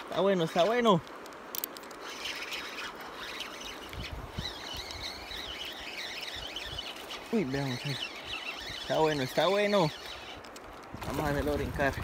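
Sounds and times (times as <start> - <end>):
steady outdoor hiss: 0.0 - 12.0
bird warbling call: 2.0 - 10.5.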